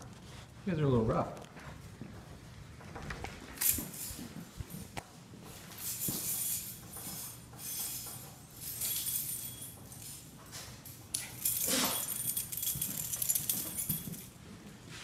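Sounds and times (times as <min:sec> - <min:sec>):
light clinking and jingling: 0:05.7 - 0:14.5.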